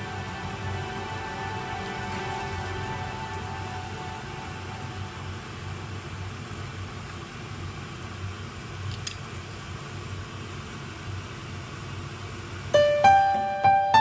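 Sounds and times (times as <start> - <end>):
piano music: 0.0 - 6.0, 12.8 - 14.0
low hum: 0.0 - 7.6.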